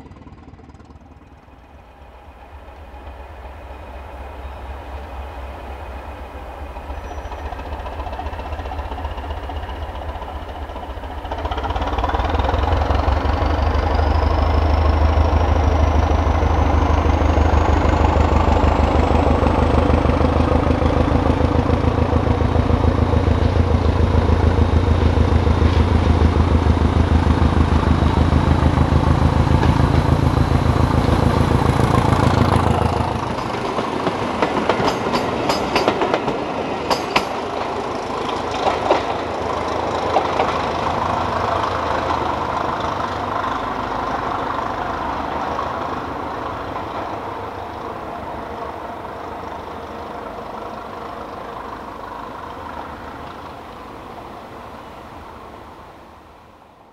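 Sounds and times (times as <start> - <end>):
diesel train engine pulsing: 0.0 - 56.9
train wheels clicking over rail joints: 6.6 - 48.0.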